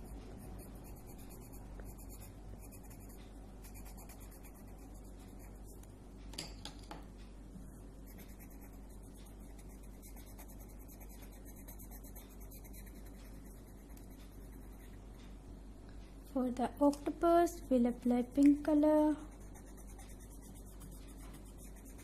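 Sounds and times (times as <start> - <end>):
pencil scratching on paper: 0.0 - 5.8, 8.0 - 15.1, 18.5 - 22.0.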